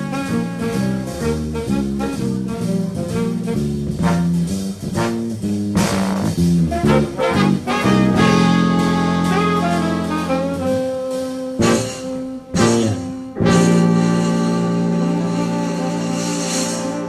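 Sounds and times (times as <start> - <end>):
big band playing swing jazz: 0.0 - 17.0
electric bass line: 0.0 - 17.0.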